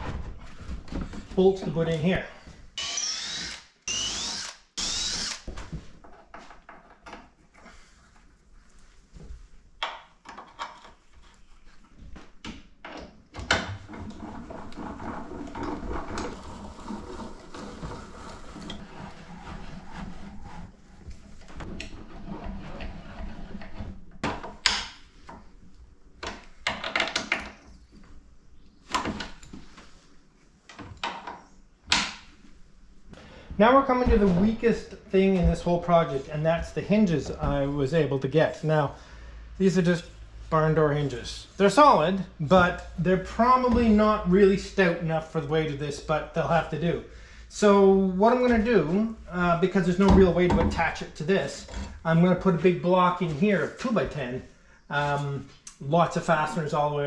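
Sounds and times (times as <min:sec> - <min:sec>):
cordless drill whining: 0:02.8 - 0:05.5.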